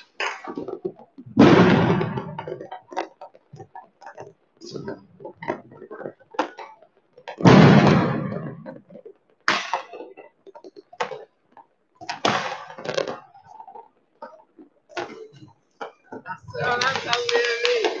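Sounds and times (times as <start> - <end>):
fireworks bangs: 0.0 - 3.7, 7.3 - 8.8, 12.1 - 13.2, 16.1 - 18.0.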